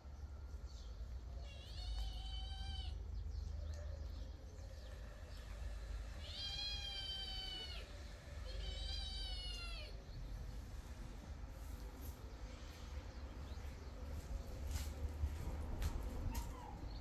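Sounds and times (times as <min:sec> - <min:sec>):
cat meowing: 0:01.4 - 0:03.0, 0:06.2 - 0:10.0.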